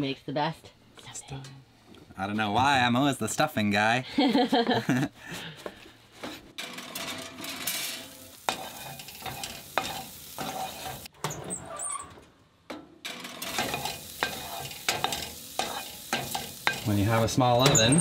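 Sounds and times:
sausage sizzling: 6.6 - 11.1, 13.1 - 18.0
spoon scraping frying pan: 6.6 - 11.1, 13.1 - 18.0.

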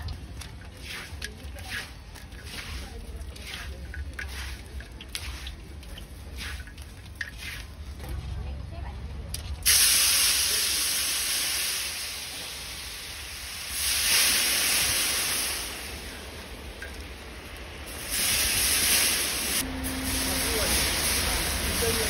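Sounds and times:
hot oil sizzling loudly: 9.6 - 22.0.

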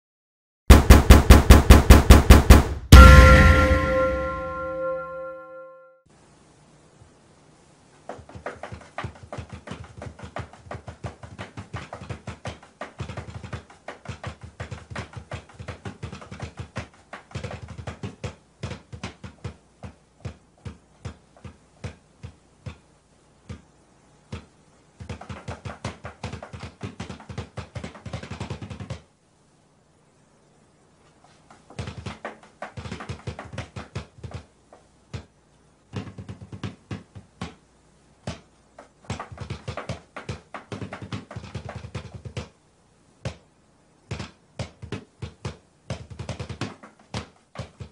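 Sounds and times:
small drums played fast: 0.7 - 5.3.

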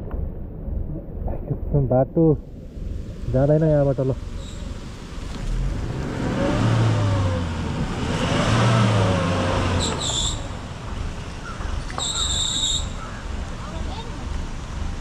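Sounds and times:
engine revving hard: 5.6 - 10.6.

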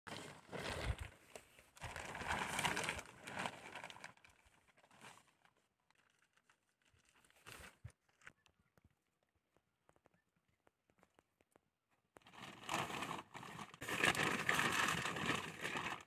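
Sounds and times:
plastic sheeting crinkling: 0.1 - 8.4, 12.2 - 16.0.

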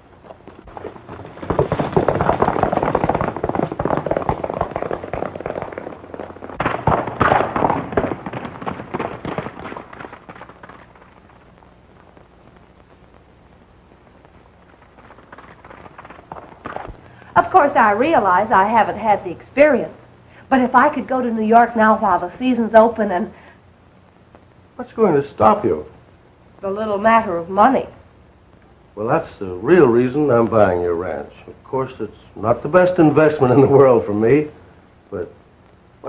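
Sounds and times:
horses galloping hoofbeats: 0.0 - 12.2, 14.2 - 18.9.

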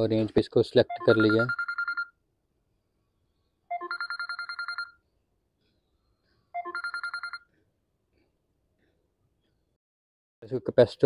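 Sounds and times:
phone ringtone trilling: 0.9 - 2.2, 3.7 - 5.0, 6.6 - 7.5.

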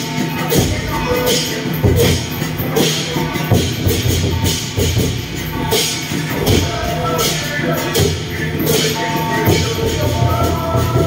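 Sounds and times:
drums: 0.0 - 11.0
percussion crash: 0.0 - 11.0.

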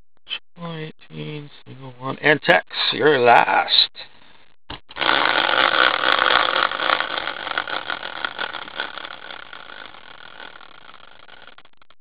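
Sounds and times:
spinning wheel ticking: 5.0 - 11.8.

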